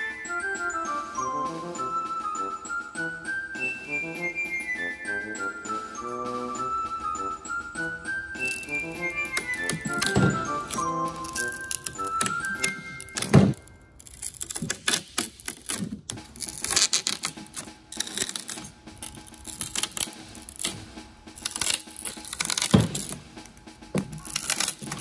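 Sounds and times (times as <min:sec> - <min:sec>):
branch snapping: 0:08.4 - 0:25.0
pruning shears crunching through wood: 0:08.4 - 0:25.0.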